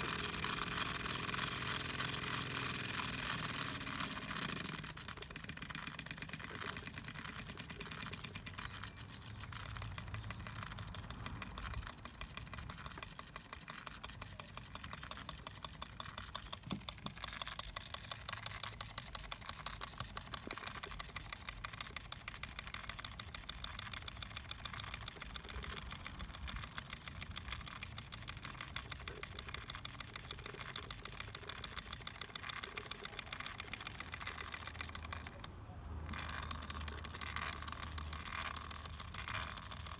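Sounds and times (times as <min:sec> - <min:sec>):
model steam engine chuffing: 0:00.0 - 0:39.9.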